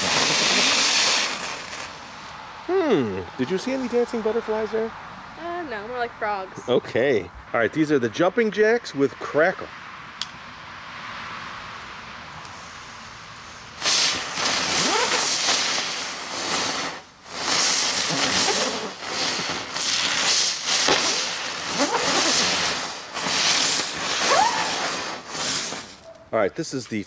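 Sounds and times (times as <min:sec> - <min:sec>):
spinning fireworks hissing: 0:00.0 - 0:04.9, 0:12.1 - 0:26.1.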